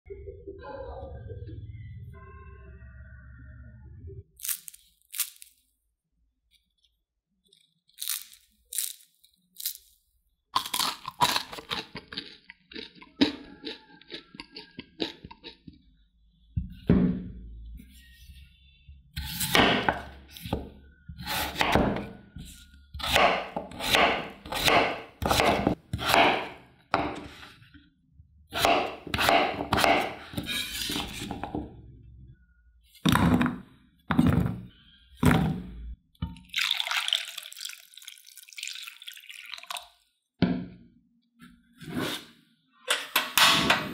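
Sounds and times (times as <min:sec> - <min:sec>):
knife chopping on cutting board: 0:19.2 - 0:22.1, 0:23.0 - 0:27.4, 0:28.6 - 0:31.3.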